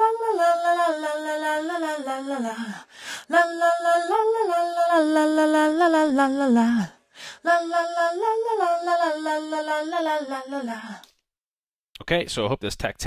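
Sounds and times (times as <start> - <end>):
woman singing a cappella: 0.0 - 11.1
breath: 2.8 - 3.3, 6.9 - 7.4.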